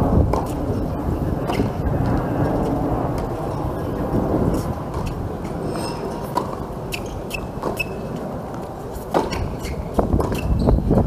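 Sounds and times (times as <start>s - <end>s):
racket hitting tennis ball: 0.3s - 1.8s, 2.5s - 10.7s
shoe squeak: 3.5s - 10.9s
ball bouncing: 4.5s - 10.8s.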